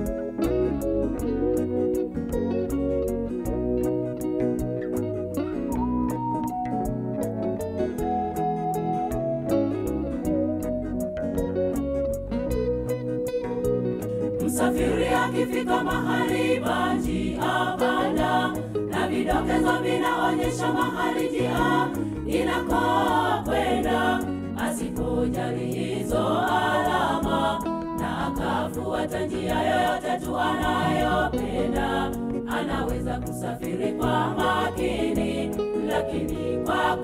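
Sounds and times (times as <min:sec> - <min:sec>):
women's choir singing gospel: 0:14.3 - 0:37.0.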